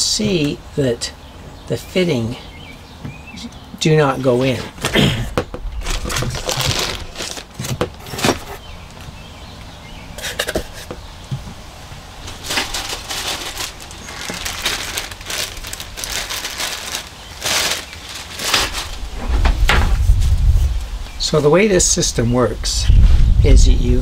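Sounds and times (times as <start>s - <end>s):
plastic tubing rustling and crinkling: 4.2s - 9.1s, 12.2s - 21.4s.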